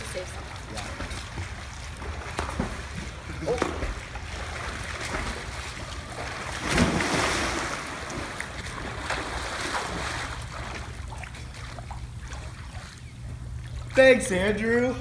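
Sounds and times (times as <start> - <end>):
swimming splashes: 0.0 - 14.6
person jumping into pool splash: 1.4 - 12.6.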